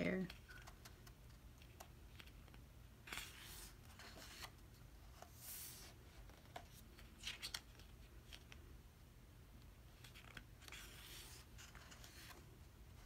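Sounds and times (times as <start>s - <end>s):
glossy pages rustling: 0.3s - 8.6s, 9.9s - 12.5s
soft paper swishes: 3.0s - 8.6s.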